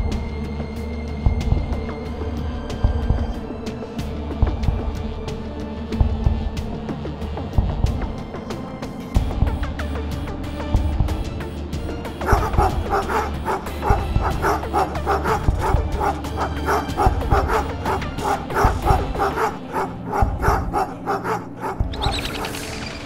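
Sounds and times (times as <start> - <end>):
low music drone: 0.0 - 23.0
cartoon wolves barking: 12.2 - 22.6.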